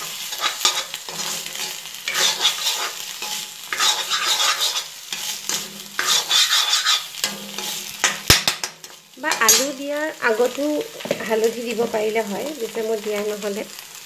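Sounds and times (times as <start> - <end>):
metal spatula scraping a pan: 0.0 - 11.3
food frying sizzle: 0.0 - 14.0.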